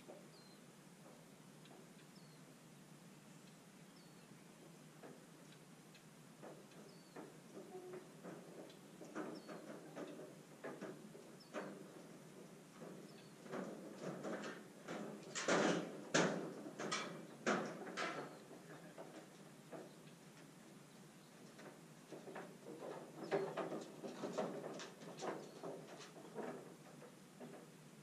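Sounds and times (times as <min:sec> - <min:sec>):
irregular clicks and knocks: 0:04.6 - 0:20.6, 0:21.4 - 0:27.8.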